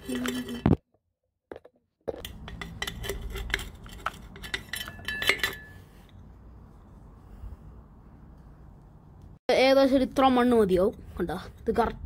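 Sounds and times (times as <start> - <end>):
trowel scraping glass jar: 0.0 - 0.8, 2.2 - 6.2.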